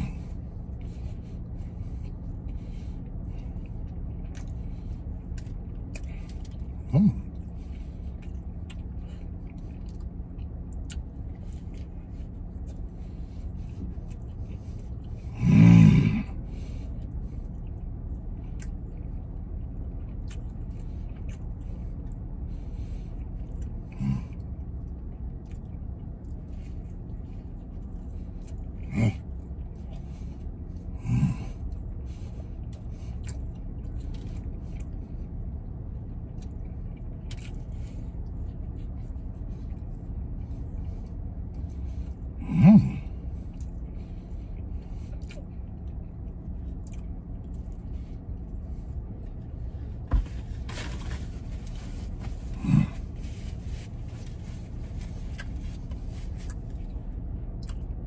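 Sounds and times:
low hum in truck cab: 0.0 - 58.0
man chewing: 0.0 - 58.0
man humming mm: 15.3 - 16.4, 42.4 - 43.1.

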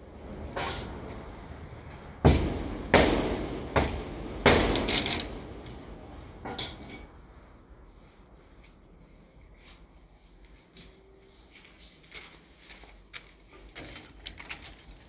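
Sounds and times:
hammer striking metal: 2.2 - 7.2.

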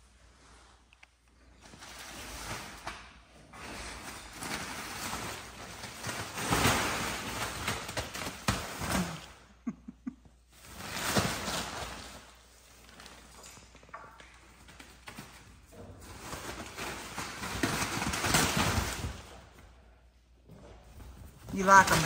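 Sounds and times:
monkeys rustling and scuffling: 0.2 - 9.4, 20.5 - 22.0.

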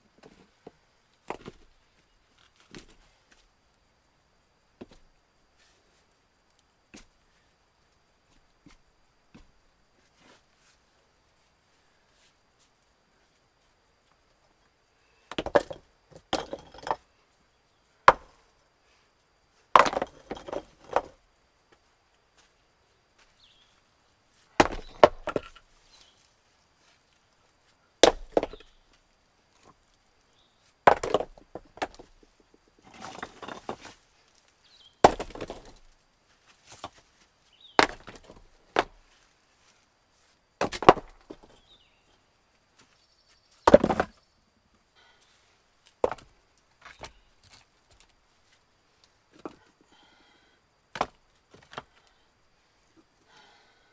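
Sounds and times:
axe blows chopping wood: 24.6 - 25.3.

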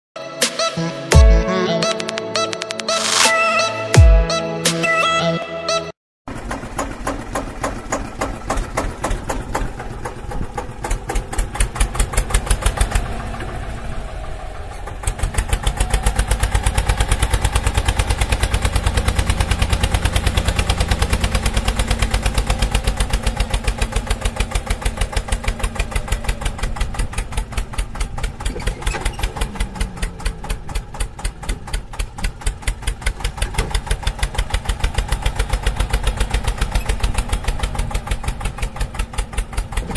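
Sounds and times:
tractor engine thudding: 6.3 - 39.9.

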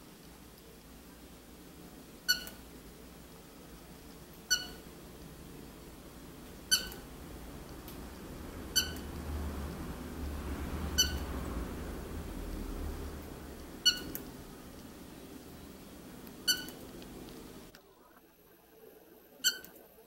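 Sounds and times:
faint low rumble: 0.0 - 18.3
cockatiel chirps: 2.3 - 2.6, 4.4 - 4.9, 6.7 - 7.0, 8.7 - 9.1, 11.0 - 11.2, 13.8 - 14.3, 16.4 - 16.8, 19.4 - 19.8.

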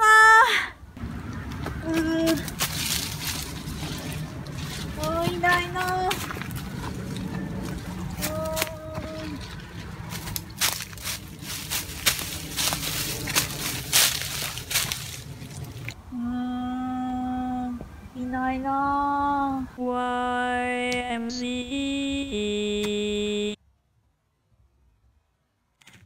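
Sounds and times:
rustling through leafy bushes: 1.3 - 16.0.

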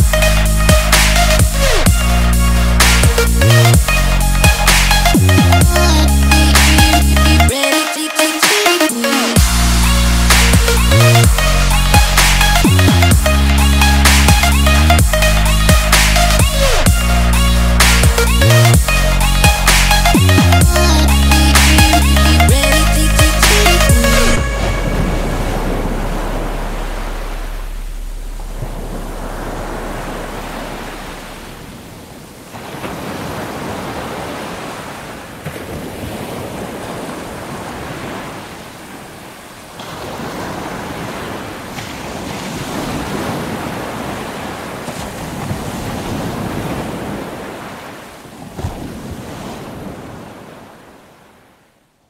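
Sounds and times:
ocean surf on beach: 5.8 - 51.9
wind on microphone: 21.6 - 34.4.

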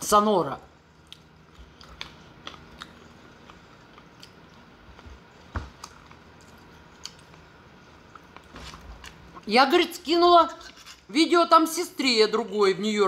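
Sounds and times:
chewing salad: 0.9 - 9.4, 10.5 - 11.1.

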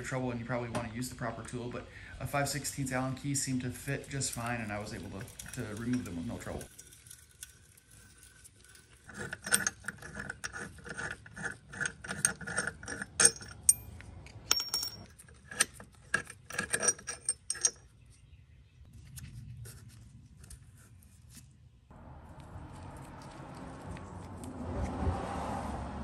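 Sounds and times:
metal hand tool clicking on bolts: 3.8 - 17.8
sharp metal clanks: 11.9 - 17.8.

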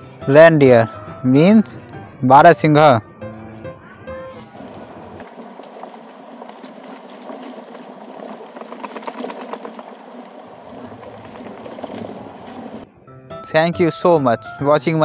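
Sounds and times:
hooves clicking on stones: 4.6 - 12.9
water washing against rocky shore: 5.2 - 12.9.

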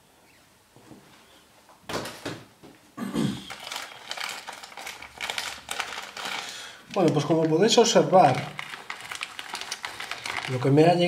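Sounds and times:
packaging rustling and crinkling: 3.4 - 11.0.

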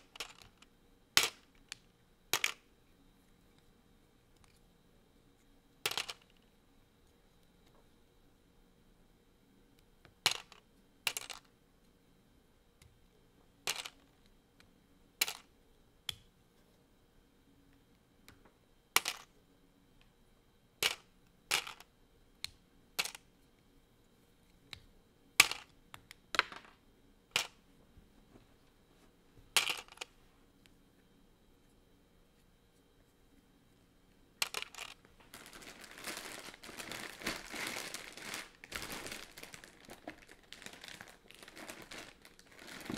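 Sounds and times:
plastic bricks clicking and snapping: 0.1 - 2.6, 5.9 - 6.4, 10.2 - 11.5, 15.2 - 15.5, 20.8 - 23.2, 25.4 - 26.7, 29.6 - 30.1, 34.4 - 35.0.

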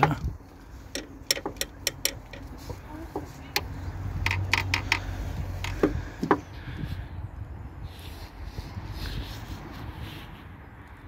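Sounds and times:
socket wrench clicking: 1.0 - 2.4.

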